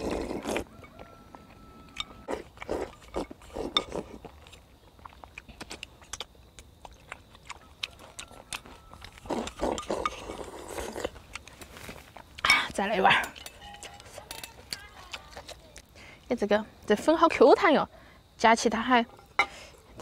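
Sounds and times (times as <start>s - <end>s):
slurping noodles: 0.0s - 0.7s, 9.2s - 11.2s
chewing: 0.0s - 16.3s.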